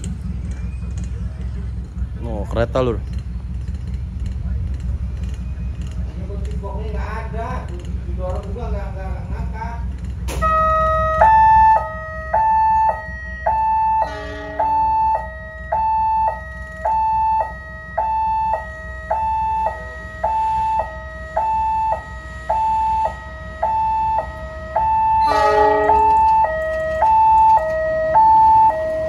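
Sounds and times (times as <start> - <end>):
low horn blast: 10.3 - 29.0
two-tone electronic warning siren: 10.3 - 29.0.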